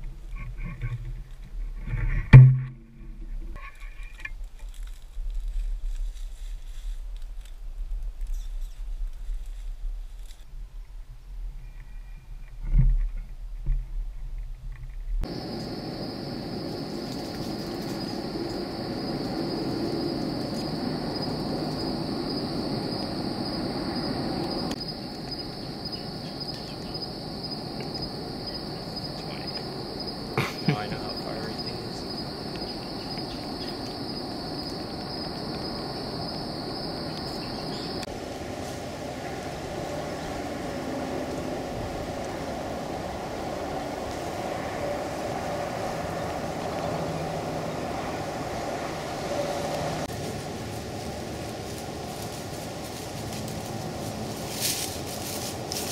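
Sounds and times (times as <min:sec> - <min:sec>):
thumps: 0:01.8 - 0:04.3
insects trilling: 0:15.2 - 0:55.9.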